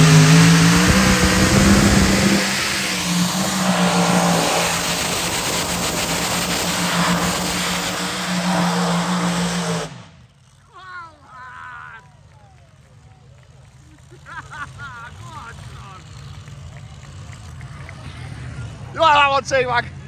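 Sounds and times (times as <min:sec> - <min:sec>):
tractor engine running flat out: 0:00.0 - 0:20.0.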